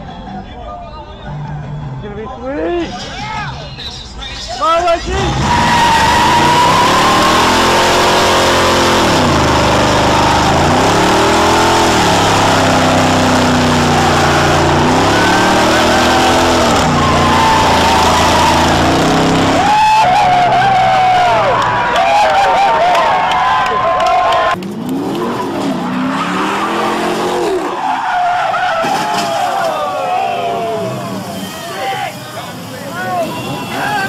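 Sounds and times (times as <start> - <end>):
tyres screeching: 2.9 - 21.5, 25.2 - 34.0
car engine revving: 4.9 - 28.8.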